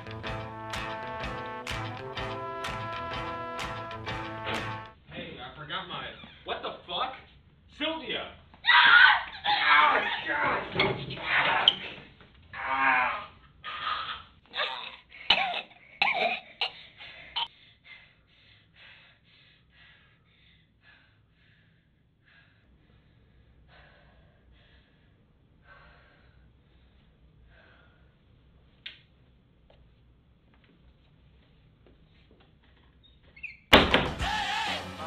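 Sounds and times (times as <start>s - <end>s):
person panting heavily: 16.7s - 28.2s.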